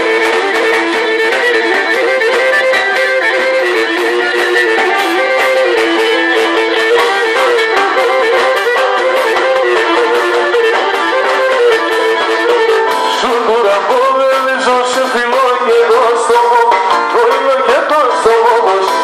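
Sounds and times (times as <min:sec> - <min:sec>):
bowed lyra playing fast melody: 0:00.0 - 0:13.4
drums beating: 0:00.0 - 0:19.0.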